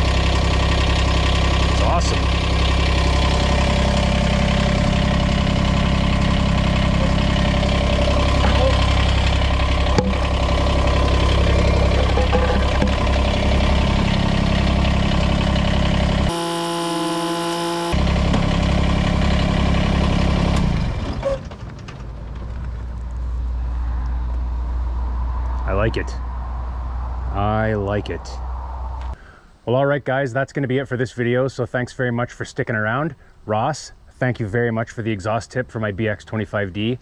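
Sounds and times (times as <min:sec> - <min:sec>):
tractor diesel engine idling: 0:00.0 - 0:21.2.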